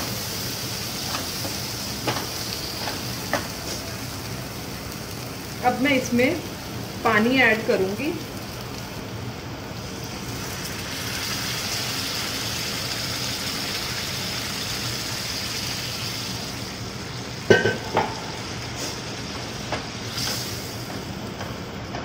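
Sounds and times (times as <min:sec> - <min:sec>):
masala sizzling in a pan: 0:00.0 - 0:21.8.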